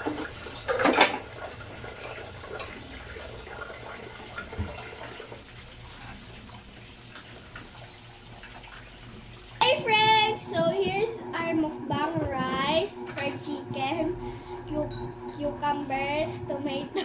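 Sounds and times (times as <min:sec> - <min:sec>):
chicken frying in oil: 0:00.0 - 0:12.0.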